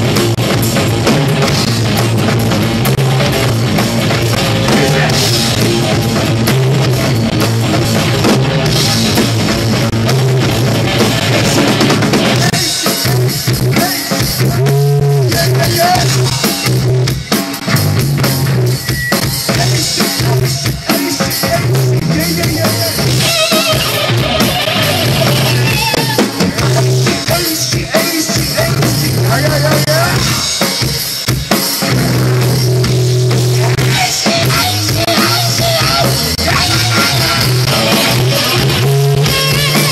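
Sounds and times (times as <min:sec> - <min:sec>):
bass guitar: 0:00.0 - 0:39.9
drum kit: 0:00.0 - 0:39.9
rock band playing live: 0:00.0 - 0:39.9.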